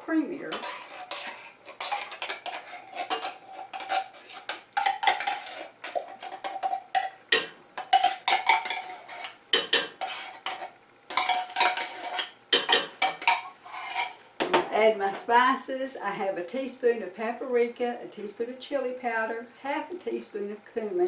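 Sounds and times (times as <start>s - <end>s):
spoon scraping a tin can: 0.4s - 14.2s.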